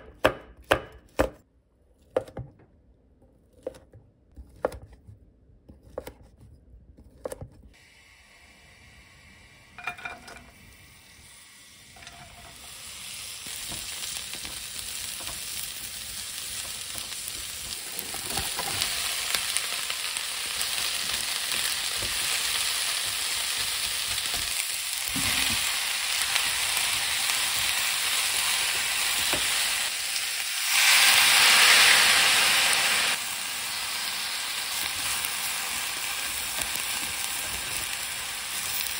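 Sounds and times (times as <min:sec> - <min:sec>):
vegetables sizzling in hot pan: 0:07.8 - 0:38.9
water hissing in hot pan: 0:07.8 - 0:38.9.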